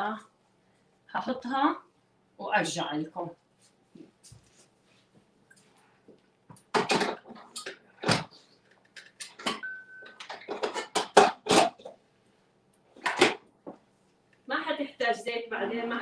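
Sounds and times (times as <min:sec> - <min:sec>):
kitchenware knocking and clinking: 0:06.7 - 0:08.3, 0:09.3 - 0:11.9
short steady beep: 0:09.6 - 0:10.2.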